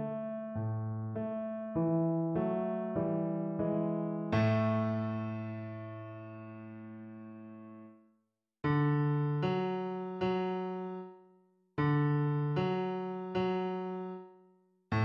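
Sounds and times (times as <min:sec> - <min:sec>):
low piano-like notes: 0:00.0 - 0:07.9.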